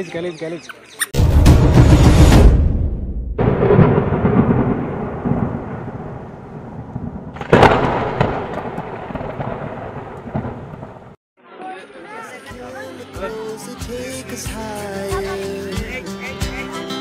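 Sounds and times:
sharp hit: 0:01.2 - 0:04.7
deep booms with rumbling tails: 0:01.2 - 0:11.2.

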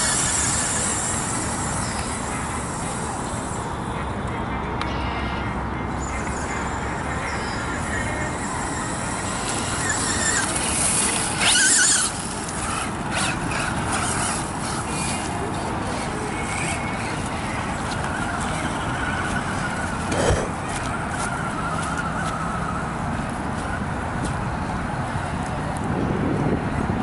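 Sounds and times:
toy car motor whining: 0:00.0 - 0:03.7, 0:06.0 - 0:20.5
tyres on grass and dirt: 0:05.9 - 0:25.8.

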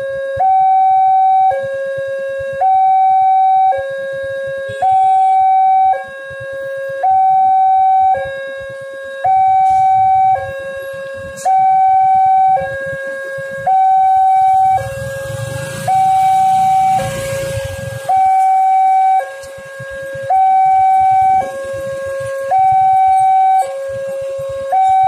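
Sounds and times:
motorcycle engine rumble: 0:00.0 - 0:25.0
two-tone level-crossing alarm: 0:00.0 - 0:25.0.

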